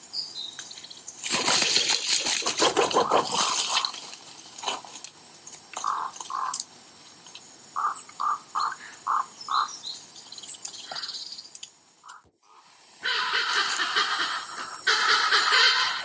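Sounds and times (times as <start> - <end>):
crow calling: 5.8 - 6.6, 7.8 - 9.8, 12.0 - 16.0.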